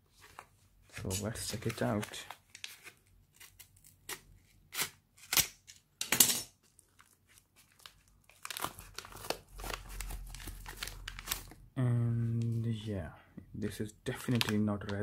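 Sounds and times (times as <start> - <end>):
envelope crinkling: 6.6 - 11.6, 14.2 - 15.0
envelope rustling and ripping: 6.6 - 11.6, 14.2 - 15.0.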